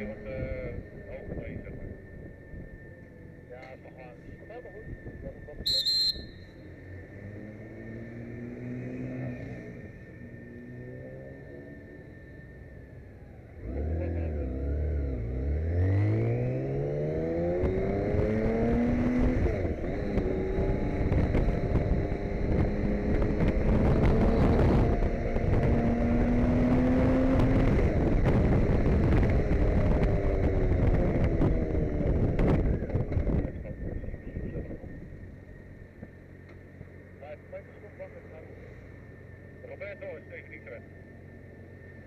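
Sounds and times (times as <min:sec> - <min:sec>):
motorcycle engine accelerating: 0:06.3 - 0:37.3
wind noise: 0:17.5 - 0:35.3.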